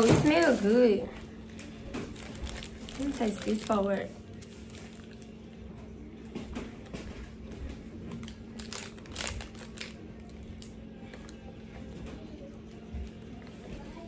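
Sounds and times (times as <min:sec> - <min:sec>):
biscuit crunching: 0:01.3 - 0:11.9
packet crinkling: 0:01.5 - 0:05.6, 0:07.6 - 0:11.5.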